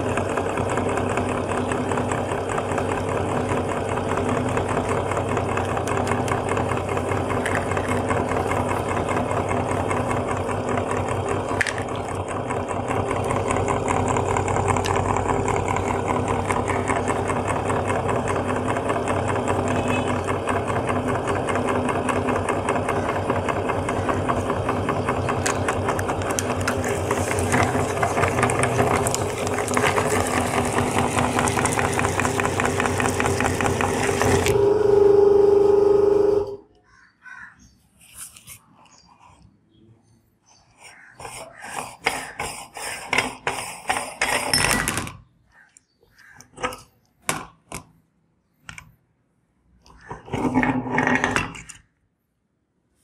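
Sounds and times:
meat grinder running: 0.0 - 36.6.

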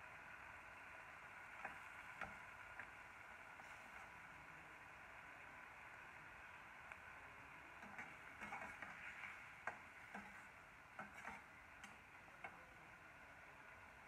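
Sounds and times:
faint steady hiss: 0.0 - 14.0
spatula scraping metal pan: 7.8 - 9.4, 10.1 - 11.5.

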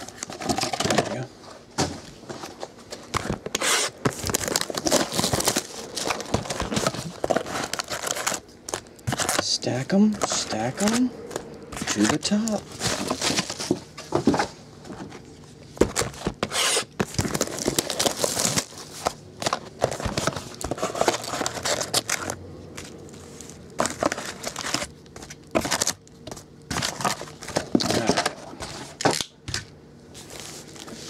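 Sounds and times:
foil card packs crinkling: 2.2 - 31.0.

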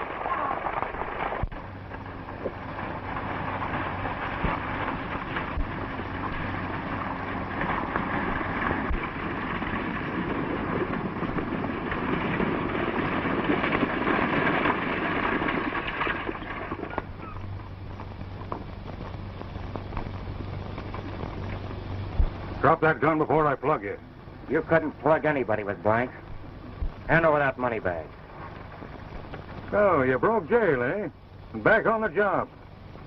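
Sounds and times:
hoofbeats and coach wheels rumbling: 0.0 - 24.0
low steady hum: 0.0 - 33.0.

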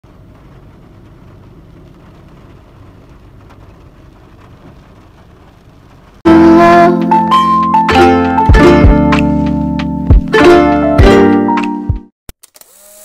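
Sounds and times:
steady rain: 0.0 - 9.8.

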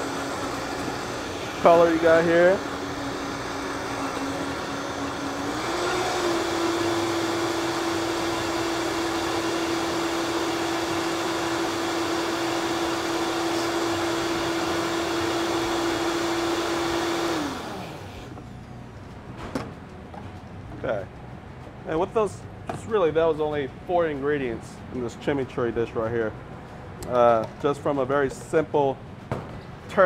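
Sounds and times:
blender motor whirring: 0.0 - 18.4.

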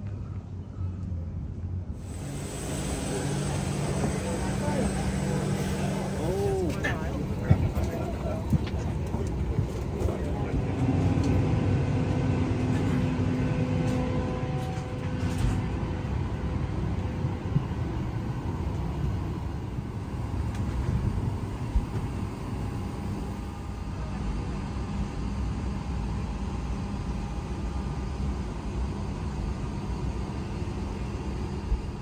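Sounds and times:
aircraft cabin rumble: 0.0 - 25.0.

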